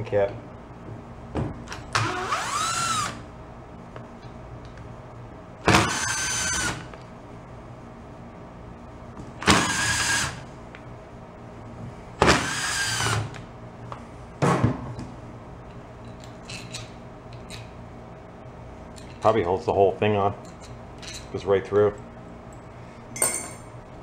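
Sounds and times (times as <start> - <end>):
cordless drill whirring: 1.9 - 3.2, 5.7 - 6.8, 9.4 - 10.4, 12.3 - 13.3.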